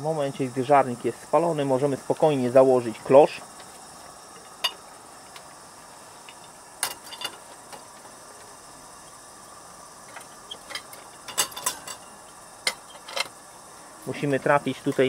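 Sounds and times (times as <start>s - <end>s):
crickets chirping: 0.0s - 15.0s
glass lantern parts clinking: 6.3s - 7.4s, 10.1s - 13.3s.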